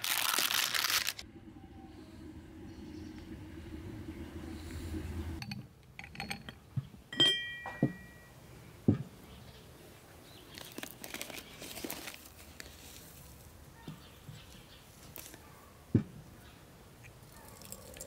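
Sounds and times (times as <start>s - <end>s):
paper rustling: 0.0s - 1.2s, 10.6s - 13.1s
teapot and glasses clinking: 5.0s - 8.4s.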